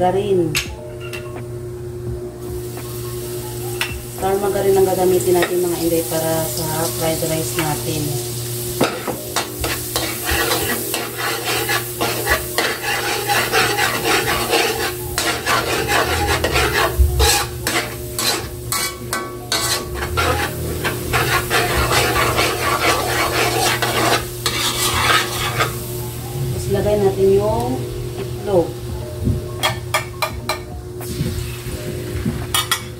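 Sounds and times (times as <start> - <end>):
margarine sizzling in a wok: 2.6 - 28.6
metal ladle scraping pan: 9.6 - 25.8.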